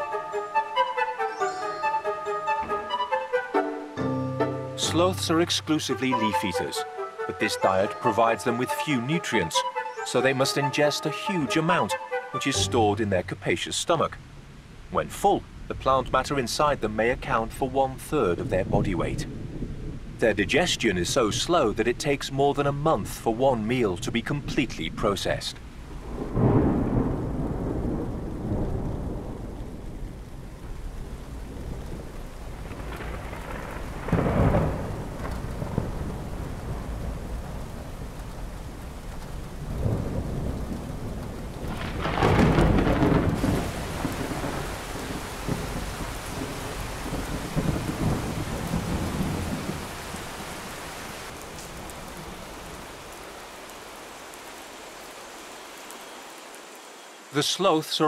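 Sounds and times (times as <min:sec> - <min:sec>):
steady rain: 0:00.0 - 0:58.0
thunder rolling: 0:18.2 - 0:21.8, 0:25.9 - 0:50.5.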